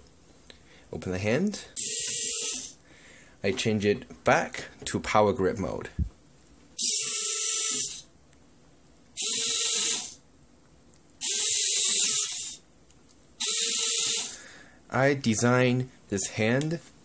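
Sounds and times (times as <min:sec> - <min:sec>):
servo motors whirring: 0:06.8 - 0:08.0, 0:09.2 - 0:10.2, 0:11.2 - 0:12.6, 0:13.4 - 0:14.4.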